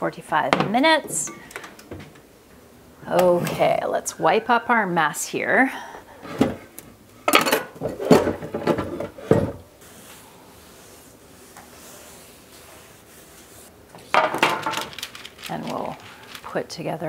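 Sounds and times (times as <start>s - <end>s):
dishes and utensils clattering: 7.3s - 9.6s
cloth rubbing wooden countertop: 9.8s - 13.7s.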